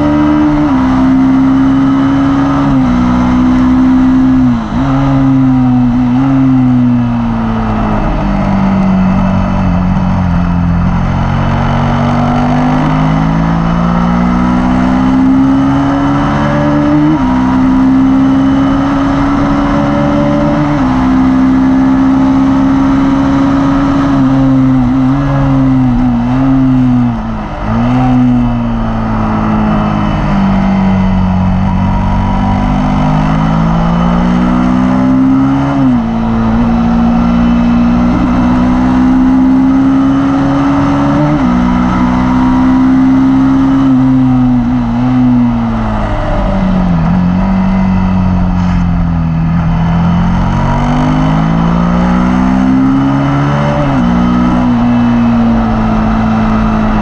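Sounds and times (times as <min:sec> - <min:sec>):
motorcycle engine at speed: 0:00.0 - 0:57.0.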